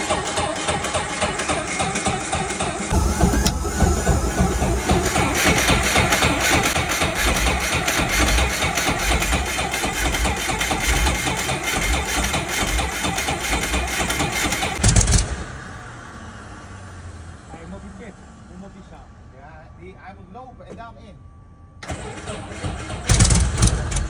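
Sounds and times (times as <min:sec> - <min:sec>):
helicopter piston engine idling: 0:00.0 - 0:15.1.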